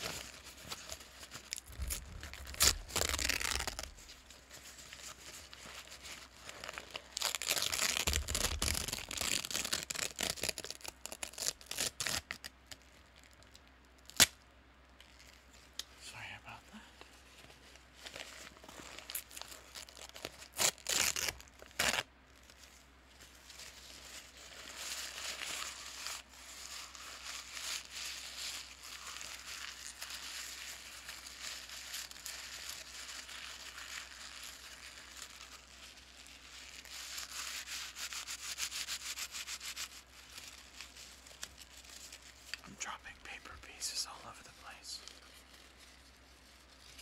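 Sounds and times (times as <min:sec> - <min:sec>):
paper bag crinkling: 0:00.0 - 0:12.0.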